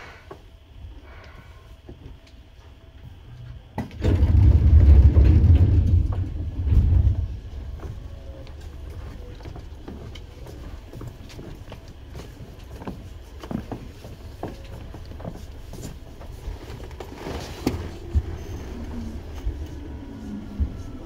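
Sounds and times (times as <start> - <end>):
train rumbling: 0.0 - 21.0
wheels knocking over rail joints: 3.8 - 8.0
faint falling whine: 17.6 - 21.0.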